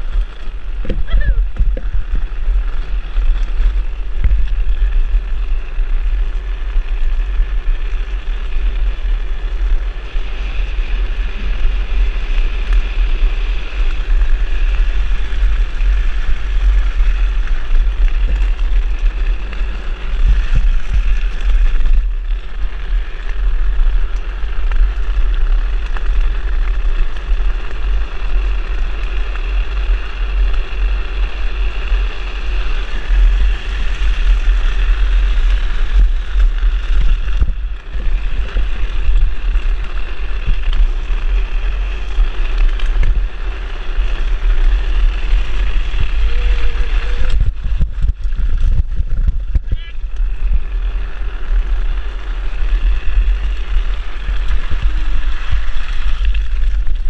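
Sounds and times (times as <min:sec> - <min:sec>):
wheels rolling on asphalt: 0:00.0 - 0:57.0
wind buffeting microphone: 0:00.0 - 0:57.0.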